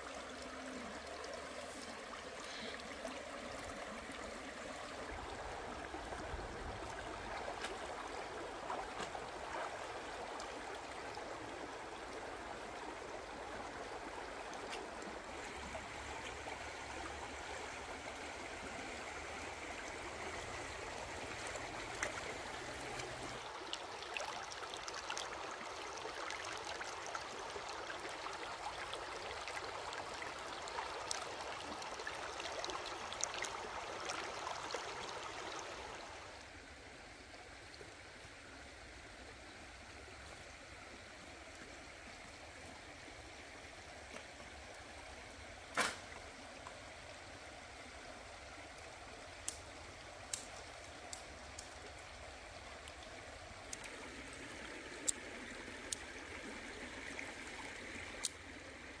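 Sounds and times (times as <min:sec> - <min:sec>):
flowing water: 0:00.0 - 0:59.0
faint clicks: 0:48.8 - 0:52.0, 0:55.9 - 0:56.1, 0:58.2 - 0:58.4.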